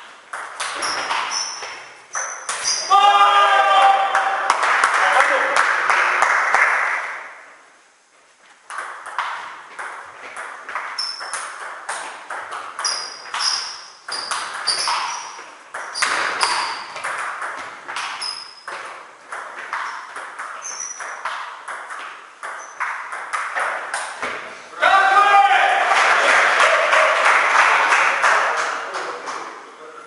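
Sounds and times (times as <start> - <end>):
short high squeaks: 0.6 - 2.9, 11.0 - 11.6, 12.8 - 17.0, 18.1 - 18.7, 19.8 - 21.3, 22.5 - 22.9.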